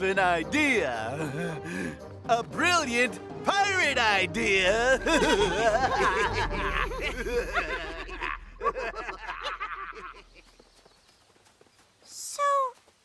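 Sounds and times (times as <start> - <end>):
cartoon character laughing: 4.9 - 10.4.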